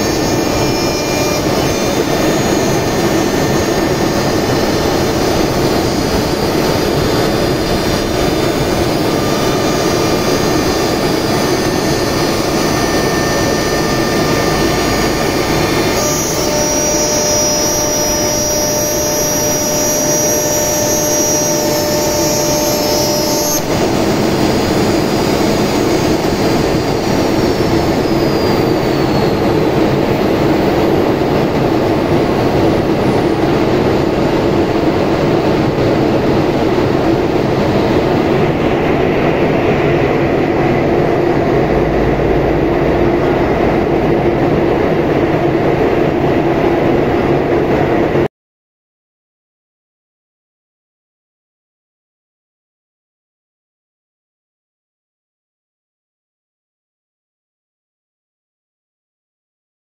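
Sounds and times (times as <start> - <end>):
router machine whine and rush: 0.0 - 45.9.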